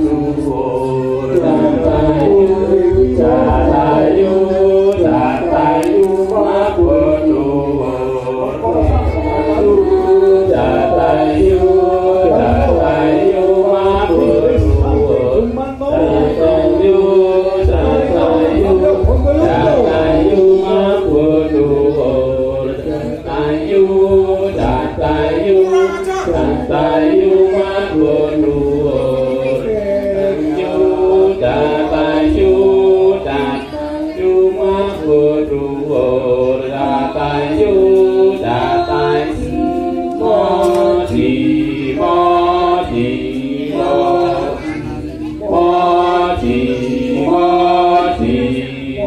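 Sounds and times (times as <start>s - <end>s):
chant-like singing: 0.0s - 49.0s
low drum beats: 1.5s - 4.4s, 8.7s - 21.5s.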